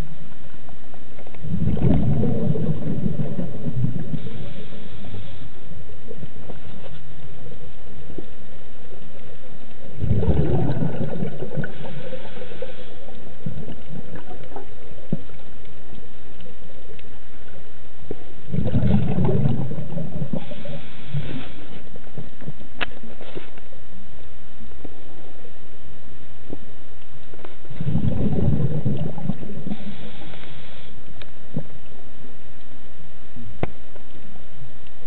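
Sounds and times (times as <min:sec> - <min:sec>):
exhaled bubbles gurgling: 0:00.0 - 0:08.6, 0:09.2 - 0:23.6, 0:27.3 - 0:32.0
low underwater rumble: 0:00.0 - 0:35.0
soft hiss: 0:00.0 - 0:35.0.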